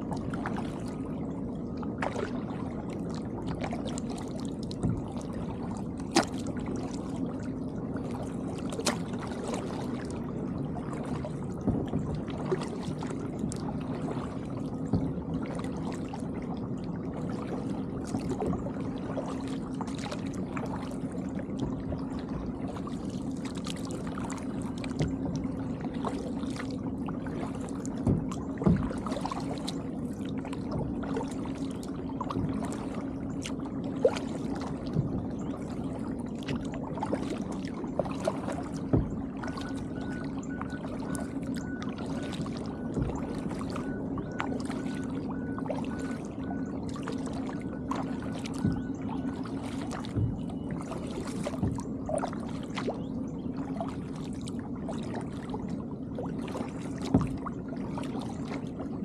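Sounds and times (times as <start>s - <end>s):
kayak paddle splashing: 0.0s - 59.0s
steady low hum: 0.0s - 59.0s
faint repeated beeping: 39.1s - 51.0s.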